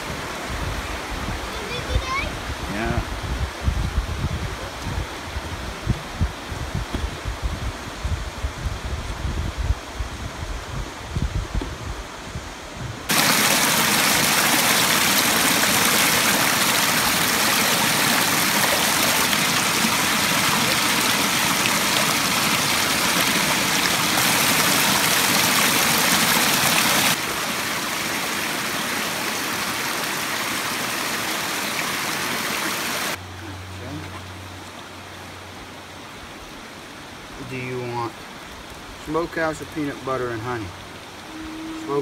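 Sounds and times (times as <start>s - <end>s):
water rushing over rocks: 0.0s - 3.5s, 12.8s - 42.0s.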